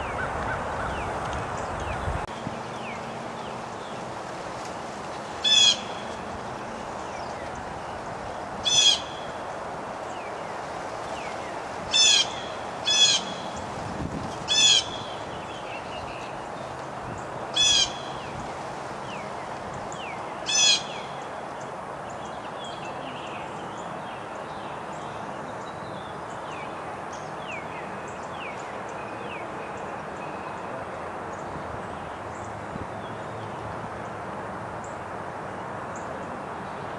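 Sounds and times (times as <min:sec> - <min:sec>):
high-pitched bird calls: 0:05.4 - 0:06.1, 0:08.6 - 0:09.4, 0:11.9 - 0:13.6, 0:14.5 - 0:15.2, 0:17.6 - 0:18.2, 0:20.5 - 0:21.1.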